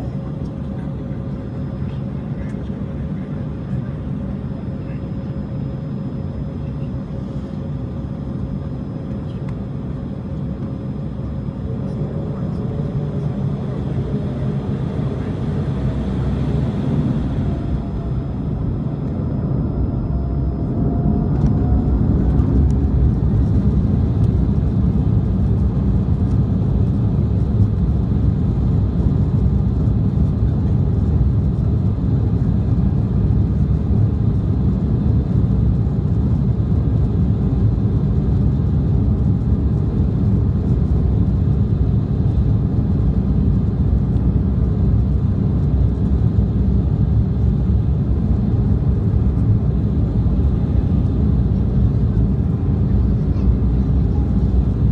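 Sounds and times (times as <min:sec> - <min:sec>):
wheels rumbling on runway: 0:06.0 - 0:54.9
jet engines spooling up: 0:11.8 - 0:23.5.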